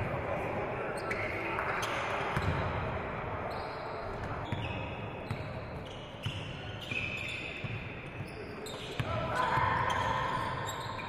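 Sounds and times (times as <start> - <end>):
faint echoing voices: 0.0 - 6.9, 7.6 - 11.0
sneakers squeaking on floor: 1.0 - 2.8, 3.5 - 11.0
ball bouncing on wooden court: 2.4 - 2.8, 7.6 - 10.2.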